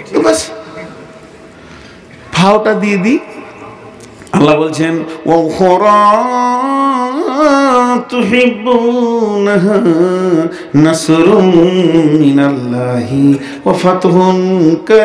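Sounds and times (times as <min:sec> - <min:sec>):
man chanting melodically: 0:02.3 - 0:15.0.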